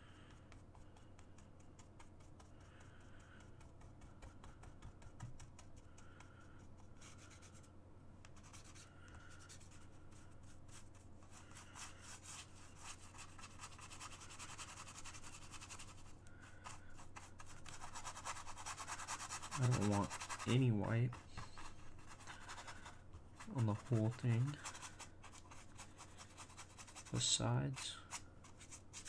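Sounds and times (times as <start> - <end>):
low steady hum: 0.0 - 29.0
paintbrush strokes on canvas: 8.4 - 29.0.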